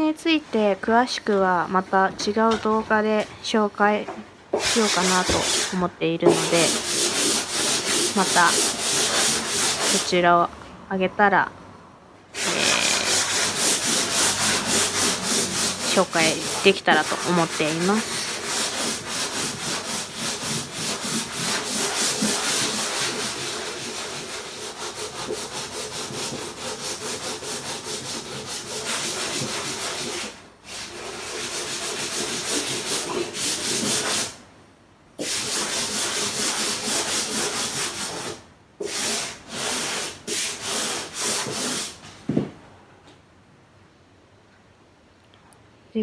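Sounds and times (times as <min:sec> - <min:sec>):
sandpaper rubbing back and forth: 0:04.6 - 0:10.2, 0:12.4 - 0:34.4, 0:35.2 - 0:42.0.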